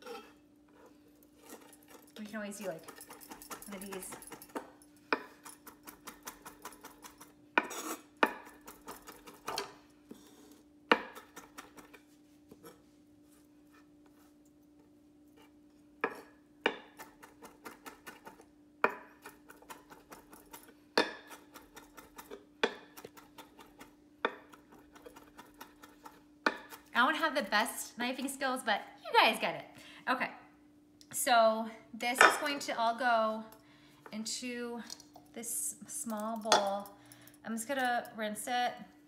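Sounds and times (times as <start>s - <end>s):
knife chopping on wooden board: 10.9s - 11.9s.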